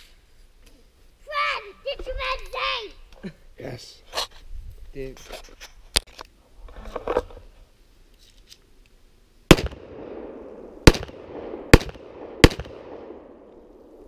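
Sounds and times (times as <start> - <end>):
handgun shots with echo: 10.9 - 13.1.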